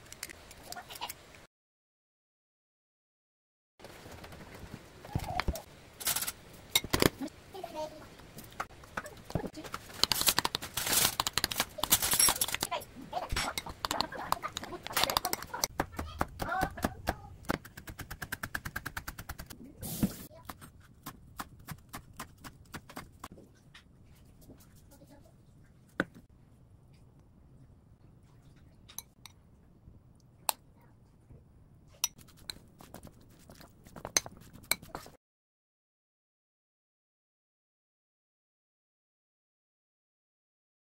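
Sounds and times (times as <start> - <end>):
spoon scraping bowl: 9.9 - 15.7, 32.0 - 35.1.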